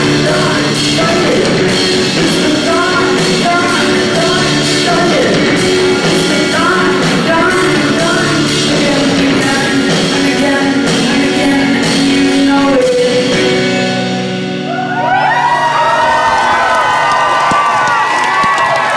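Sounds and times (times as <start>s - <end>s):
woman singing: 0.0s - 14.0s
live band music: 0.0s - 17.7s
crowd cheering and whooping: 14.6s - 18.9s.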